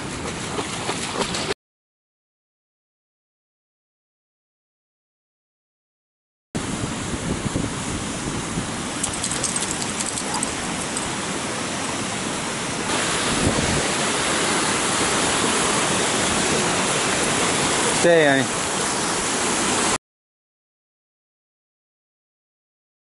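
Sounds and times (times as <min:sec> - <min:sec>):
creek and waterfall rushing: 0:07.8 - 0:20.0.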